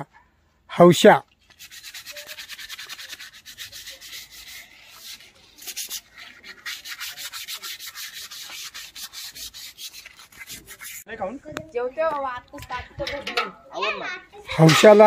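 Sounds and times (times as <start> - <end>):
horn being scraped by hand: 1.5 - 11.1.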